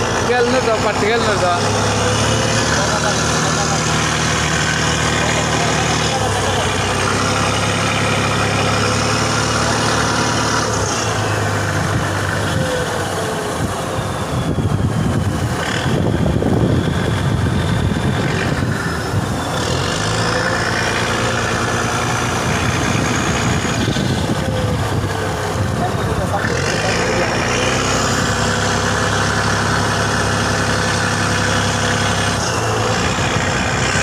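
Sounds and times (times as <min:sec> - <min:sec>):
boat engine running: 0:00.0 - 0:34.0
rush of water and wind: 0:08.8 - 0:34.0.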